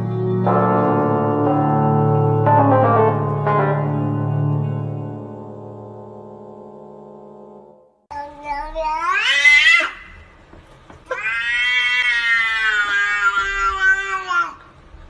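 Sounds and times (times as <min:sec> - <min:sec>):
cat meowing: 0:08.5 - 0:10.2, 0:11.1 - 0:14.6.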